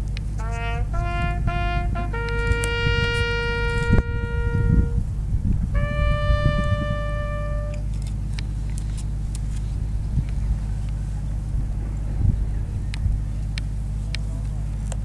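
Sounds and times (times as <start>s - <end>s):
wind buffeting microphone: 0.0s - 15.0s
bugle long notes: 0.3s - 8.2s.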